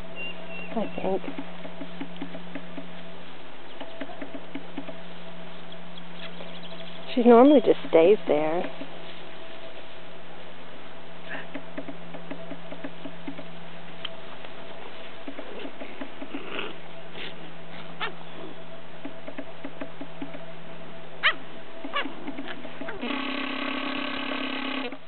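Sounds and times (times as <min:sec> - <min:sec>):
steady droning tone: 0:00.0 - 0:25.0
puppies yipping and whimpering: 0:15.5 - 0:18.6, 0:21.2 - 0:23.0.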